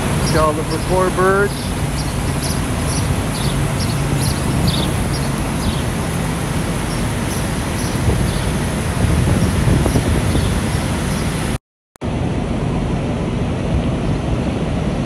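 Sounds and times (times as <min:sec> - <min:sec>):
truck engines droning: 0:00.0 - 0:15.0
small birds chirping: 0:00.2 - 0:11.5.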